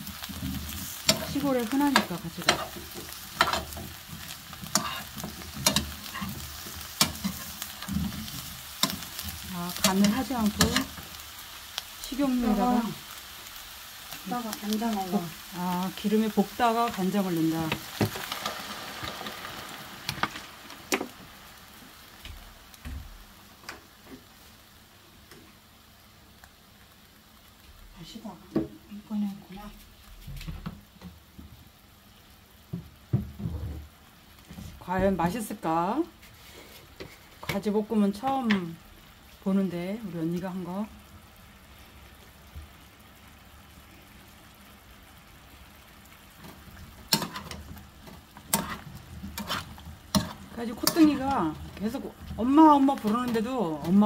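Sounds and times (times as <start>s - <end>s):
eggplant sizzling in frying pan: 0.0s - 54.0s
spatula scraping pan: 0.2s - 11.0s, 47.1s - 52.4s.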